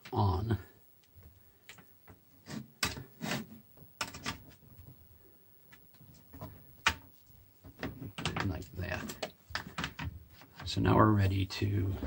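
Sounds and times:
cable handling clicks and rustles: 0:07.6 - 0:10.8.

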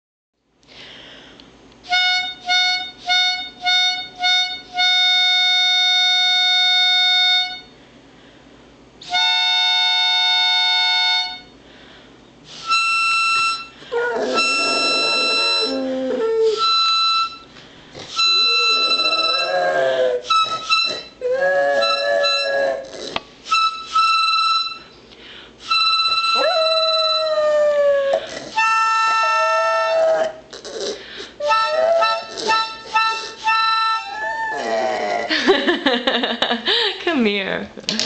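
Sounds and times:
harmonica playing: 0:01.8 - 0:07.8, 0:09.0 - 0:11.6, 0:12.5 - 0:25.0, 0:25.6 - 0:27.6, 0:28.5 - 0:30.2, 0:31.4 - 0:35.0
dog howling: 0:13.9 - 0:16.8, 0:18.2 - 0:22.9, 0:26.3 - 0:30.4, 0:31.4 - 0:32.8, 0:33.8 - 0:35.4.

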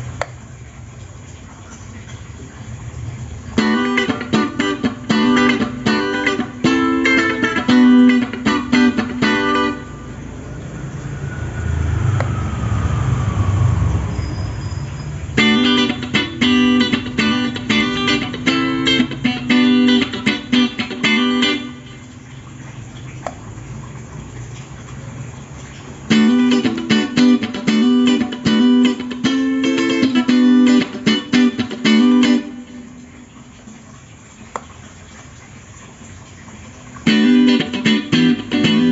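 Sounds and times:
electric guitar riff: 0:03.6 - 0:10.1, 0:15.4 - 0:22.0, 0:26.1 - 0:32.9, 0:37.0 - 0:38.9
low rumble: 0:11.1 - 0:14.8.

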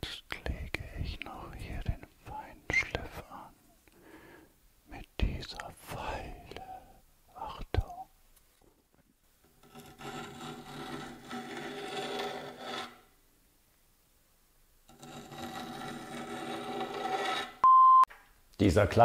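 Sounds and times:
file rasping on steel tubing: 0:09.5 - 0:13.1, 0:14.9 - 0:17.6.

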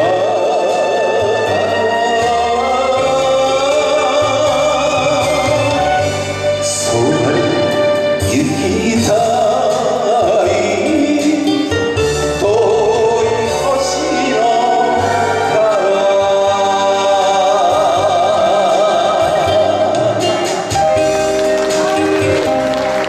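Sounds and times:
man singing into a microphone: 0:00.0 - 0:20.9
karaoke backing track: 0:00.0 - 0:23.0.

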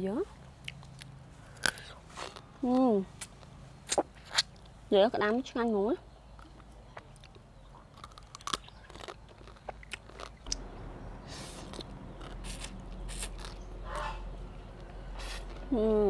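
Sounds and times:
person chewing and slurping noodles: 0:11.2 - 0:14.2, 0:15.1 - 0:15.7.

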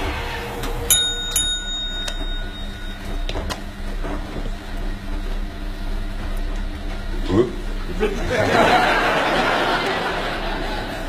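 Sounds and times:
bright bell ding: 0:00.9 - 0:03.8.

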